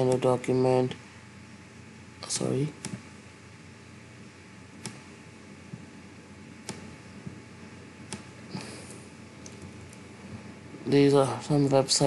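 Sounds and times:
faint steady hiss: 0:00.0 - 0:12.0
computer mouse clicking: 0:04.8 - 0:05.1, 0:06.6 - 0:06.9, 0:08.1 - 0:08.3.

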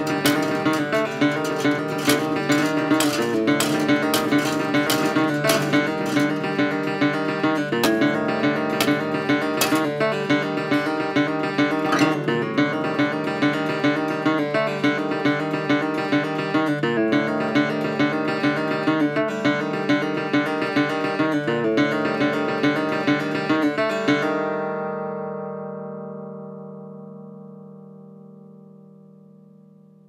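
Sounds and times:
acoustic guitar picked rhythm: 0:00.0 - 0:14.4.

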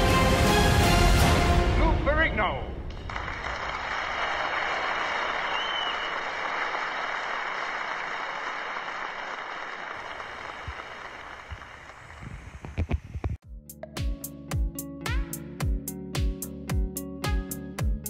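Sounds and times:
audience applauding: 0:03.0 - 0:12.8.

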